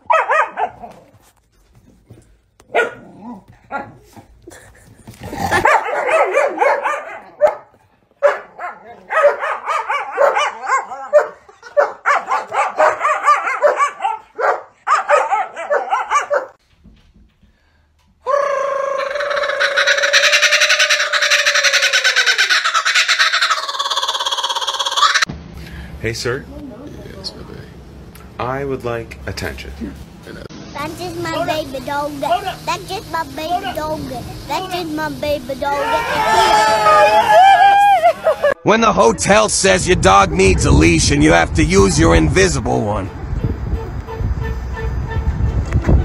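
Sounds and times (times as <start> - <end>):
dog barking and yapping: 0.0 - 1.2, 2.6 - 4.3, 5.5 - 16.6.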